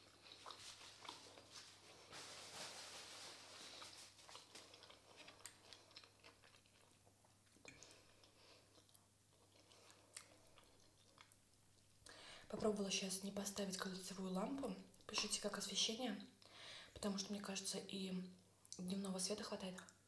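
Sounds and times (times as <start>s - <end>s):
chewing soft food: 0.0s - 2.1s, 3.7s - 12.1s.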